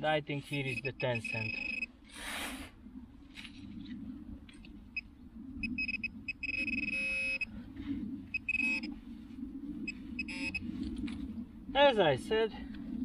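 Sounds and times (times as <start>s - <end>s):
metal detector pinpointer beeping: 0.6s - 1.9s, 5.7s - 7.5s, 8.4s - 8.9s, 10.2s - 10.6s.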